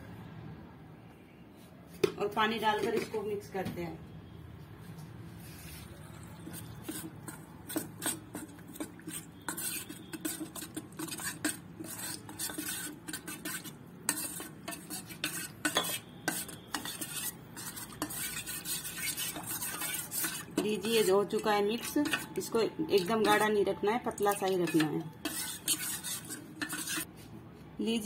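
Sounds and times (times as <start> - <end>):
spoon clinking and scraping metal bowl: 6.2 - 27.1.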